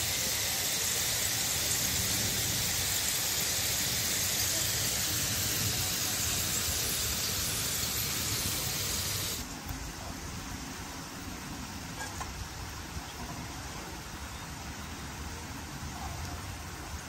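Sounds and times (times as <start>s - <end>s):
potato sticks frying in oil: 0.0s - 9.8s.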